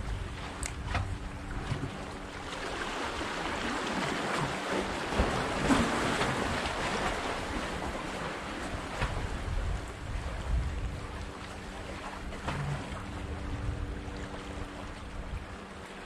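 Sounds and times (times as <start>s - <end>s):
wind buffeting microphone: 0.0s - 2.3s, 5.0s - 15.9s
waves washing against rocks: 1.6s - 10.6s.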